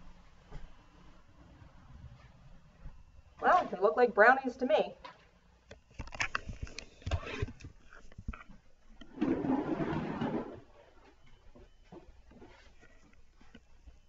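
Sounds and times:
rustling scrape: 9.1s - 10.6s.

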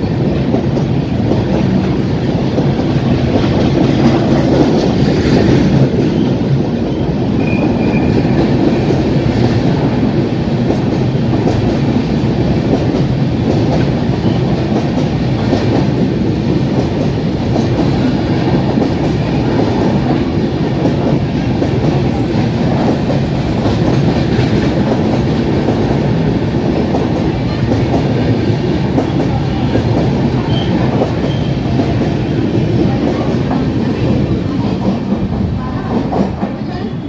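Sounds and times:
train wheels on rails: 0.0s - 37.0s.

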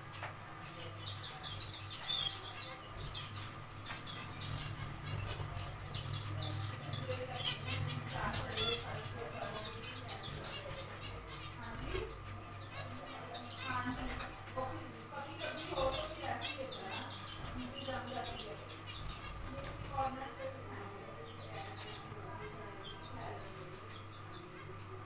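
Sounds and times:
steady low hum: 0.0s - 25.0s
finches chirping and calling: 0.6s - 20.2s.

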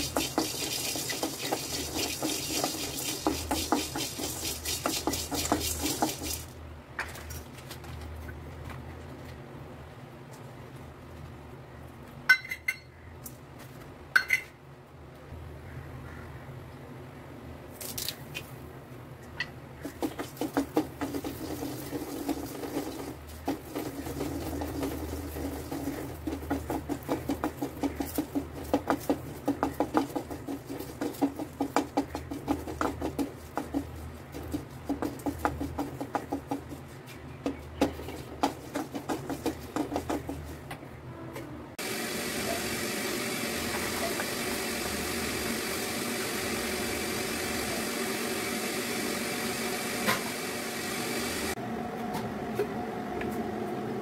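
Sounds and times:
wooden spatula clicking and scraping: 0.0s - 6.5s, 19.8s - 40.8s.

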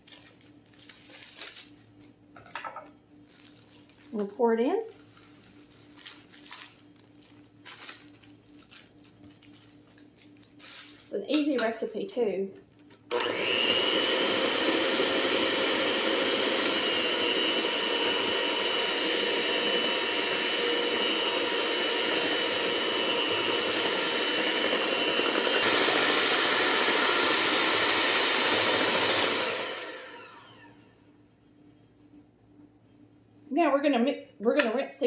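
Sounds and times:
electric hand mixer whining: 13.1s - 31.0s.

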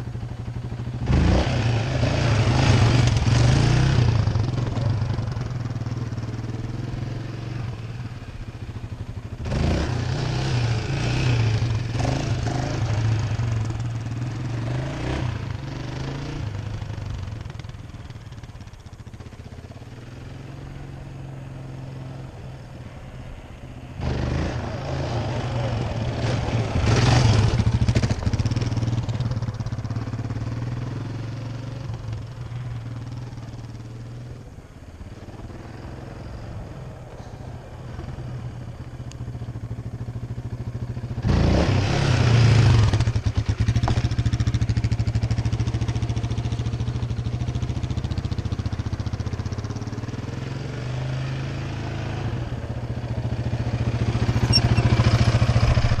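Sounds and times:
quad bike engine revving: 0.4s - 8.2s, 9.3s - 17.8s, 24.0s - 32.3s, 39.8s - 56.0s.

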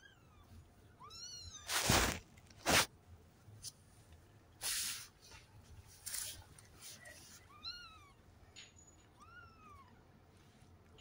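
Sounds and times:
rustling noise: 1.7s - 2.9s, 4.6s - 7.5s.

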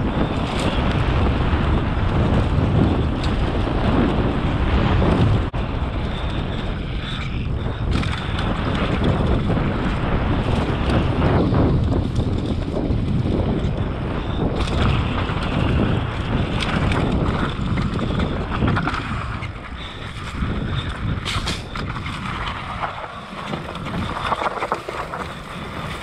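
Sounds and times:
wind buffeting microphone: 0.0s - 26.0s
tyres rolling over dirt: 14.7s - 26.0s.

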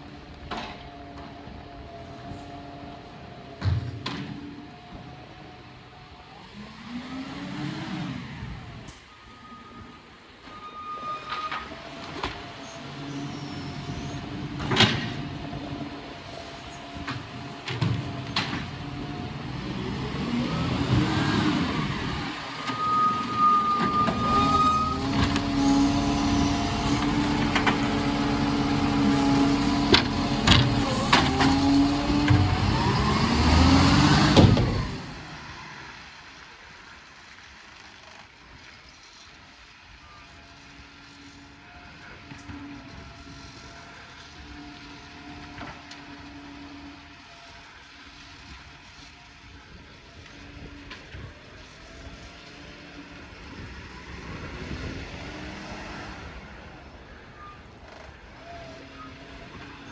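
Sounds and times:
garbage truck diesel engine revving: 11.8s - 36.0s.

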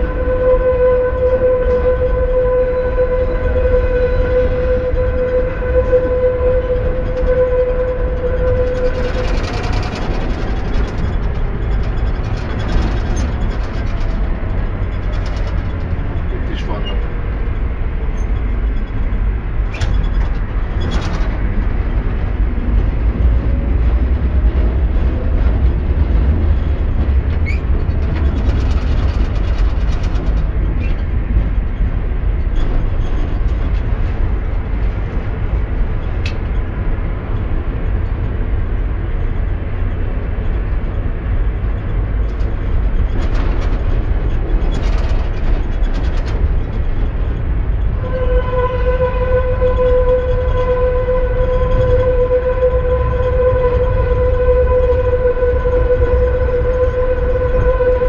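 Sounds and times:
tram rumbling on rails: 0.0s - 58.0s
rattling: 6.8s - 22.0s.

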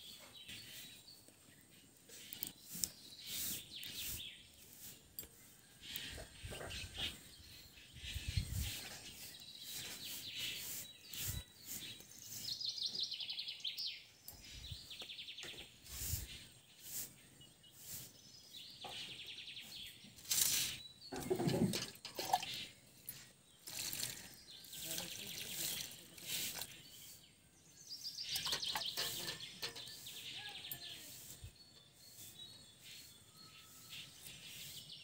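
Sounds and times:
birds chirping and trilling: 0.0s - 35.0s
steel dishes clinking: 28.4s - 30.0s.

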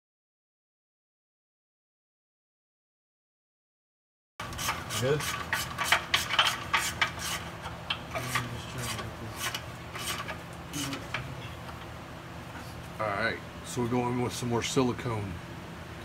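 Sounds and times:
scraping on metal: 4.4s - 11.7s.

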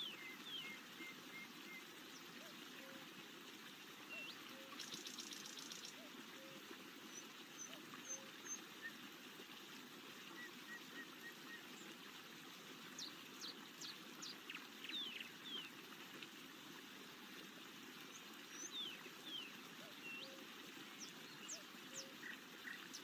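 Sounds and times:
small birds chirping: 0.0s - 2.6s, 4.0s - 9.0s, 12.9s - 15.8s, 18.1s - 23.0s.

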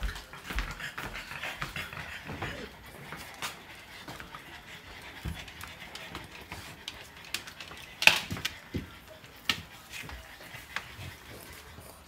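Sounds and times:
dog panting: 0.0s - 12.0s.

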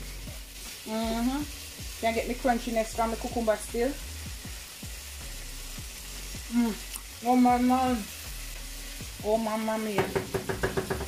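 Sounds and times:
fish and vegetables sizzling in a pan: 0.0s - 11.0s
woman speaking: 0.9s - 4.0s, 6.5s - 8.1s, 9.2s - 10.2s
woman's drawn-out vocal sound: 6.5s - 6.9s.

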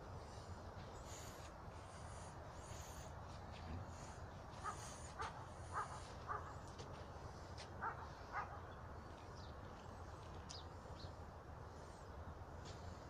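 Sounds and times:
faint dog barking: 4.6s - 6.7s, 7.8s - 8.7s.

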